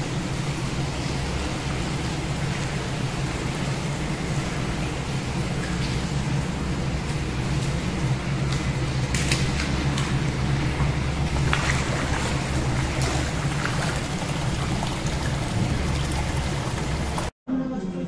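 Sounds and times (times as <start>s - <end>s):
steady low hum: 0.0s - 18.0s
water pouring into a bath: 8.6s - 17.3s.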